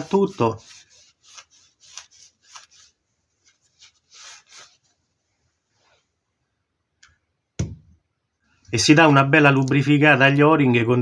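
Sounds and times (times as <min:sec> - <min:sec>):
paper towel rubbing on metal: 0:00.0 - 0:06.1.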